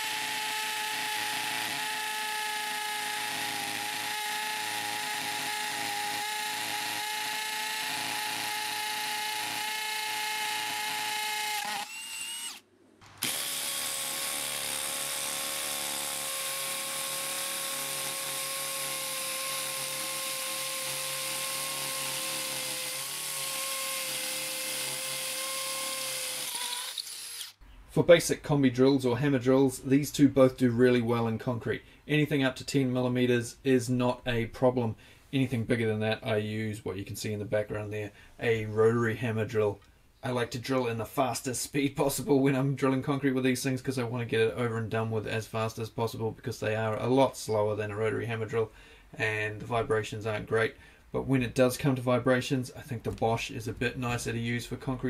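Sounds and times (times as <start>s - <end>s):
drill hammer-drilling into concrete: 0.0s - 27.6s.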